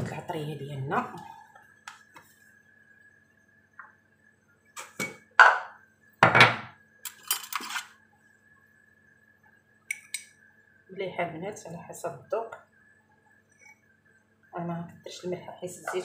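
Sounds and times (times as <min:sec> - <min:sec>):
dishes and utensils clinking: 0:06.4 - 0:07.9.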